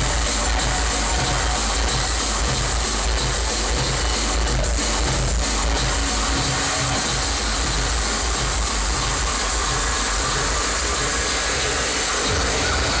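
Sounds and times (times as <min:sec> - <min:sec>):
distorted hardcore music: 0:00.0 - 0:13.0.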